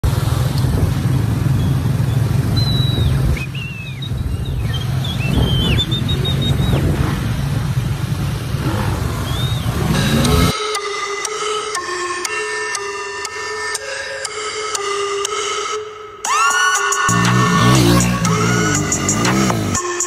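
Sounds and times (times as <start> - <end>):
small motorcycle engines running: 0.0 - 10.5, 17.1 - 20.0
wind rumble on microphone: 0.4 - 9.8.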